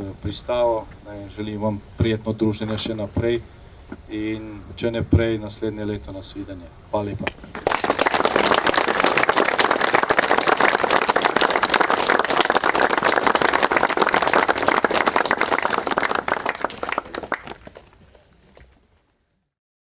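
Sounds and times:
crowd applauding: 0:07.5 - 0:18.7.

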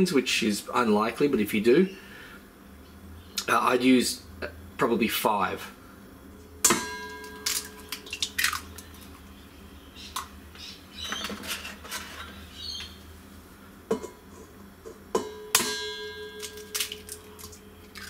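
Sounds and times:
metal bowl ringing: 0:06.4 - 0:08.1, 0:15.2 - 0:17.8
eggs cracked on metal bowl: 0:06.7 - 0:09.3, 0:10.1 - 0:10.3, 0:15.2 - 0:18.0.

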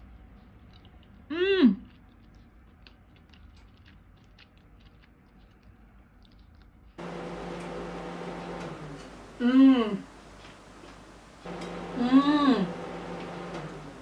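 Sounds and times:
quiet chewing: 0:00.0 - 0:09.4
steady low hum: 0:07.0 - 0:14.0.

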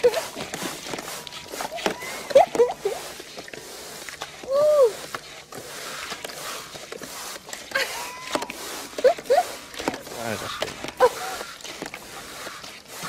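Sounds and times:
woman's high-pitched cry: 0:01.9 - 0:03.0, 0:04.5 - 0:05.0, 0:07.8 - 0:09.5.

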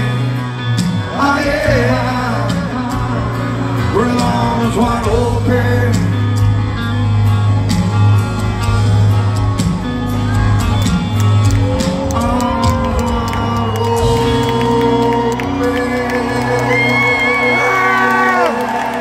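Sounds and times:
man singing lead vocal: 0:00.0 - 0:06.6, 0:11.6 - 0:18.7
electric guitars: 0:00.0 - 0:19.0
heavy bass line: 0:00.0 - 0:19.0.

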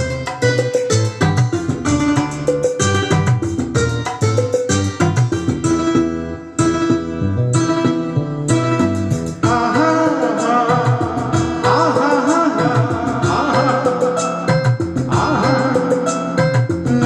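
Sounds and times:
karaoke backing track: 0:00.0 - 0:17.0
man singing into a microphone: 0:09.4 - 0:17.0.

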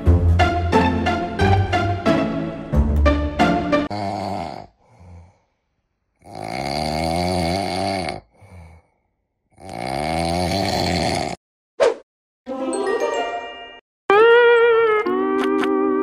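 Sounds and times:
person snoring: 0:03.9 - 0:05.5, 0:06.2 - 0:11.4.

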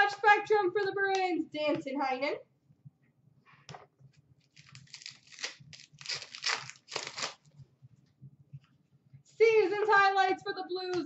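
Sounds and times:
wrapper tearing and crinkling: 0:04.5 - 0:07.5.

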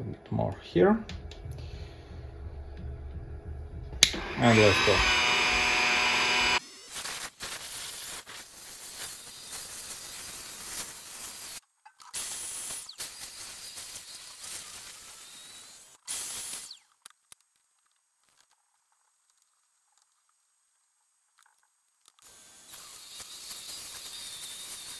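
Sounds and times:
milling machine motor whining: 0:01.1 - 0:06.6
end mill cutting metal hiss: 0:04.0 - 0:11.6.

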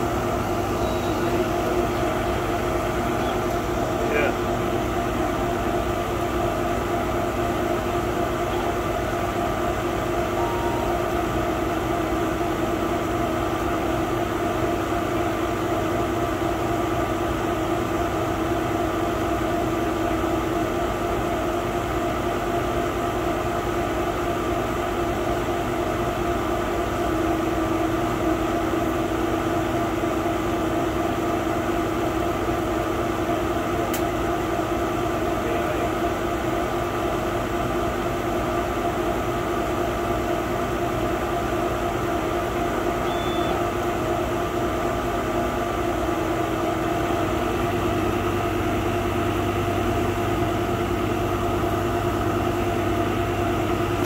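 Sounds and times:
laser cutter humming: 0:00.0 - 0:04.4, 0:10.2 - 0:11.8, 0:43.0 - 0:43.7.

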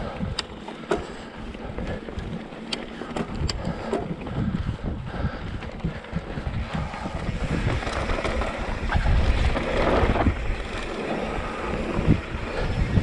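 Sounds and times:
bike clicks and rattles: 0:00.0 - 0:13.0
wind buffeting microphone: 0:00.0 - 0:13.0
tyres rolling on dirt: 0:05.4 - 0:13.0.

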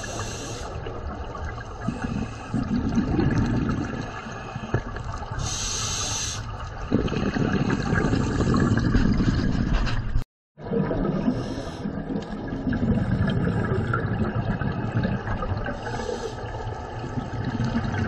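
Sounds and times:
regulator inhalation hiss: 0:00.0 - 0:00.8, 0:05.4 - 0:06.5
exhaled bubbles rushing: 0:00.0 - 0:05.6, 0:06.5 - 0:18.0.

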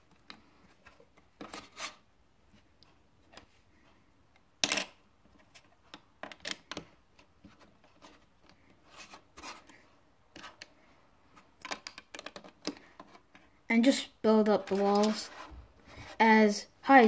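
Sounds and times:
plastic bricks clicking: 0:11.6 - 0:12.8.

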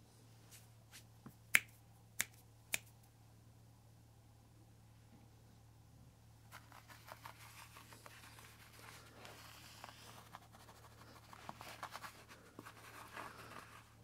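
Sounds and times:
scratchy rustles on carpet: 0:06.5 - 0:14.0.

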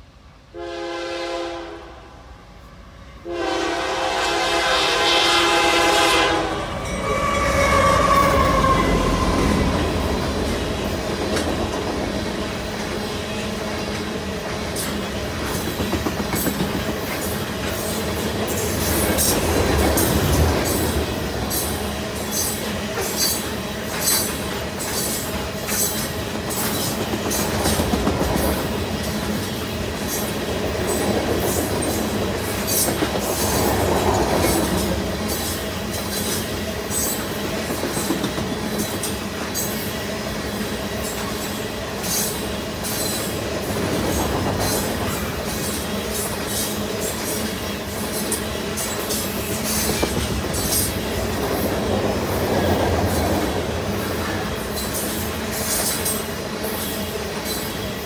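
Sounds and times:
train wheels rumbling on rail: 0:00.0 - 0:58.0
wheels clicking over rail joints: 0:09.2 - 0:39.8.

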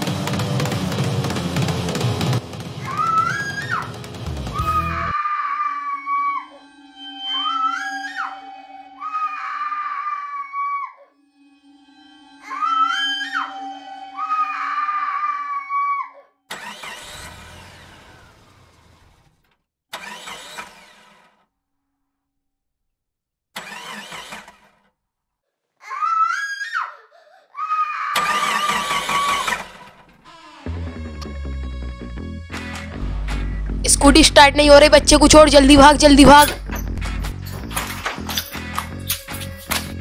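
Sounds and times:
child screaming: 0:02.8 - 0:06.7, 0:07.3 - 0:11.2, 0:12.4 - 0:16.4, 0:25.8 - 0:29.5
scooter starter cranking: 0:16.5 - 0:18.5, 0:19.9 - 0:21.4, 0:23.6 - 0:24.8, 0:28.2 - 0:30.8.

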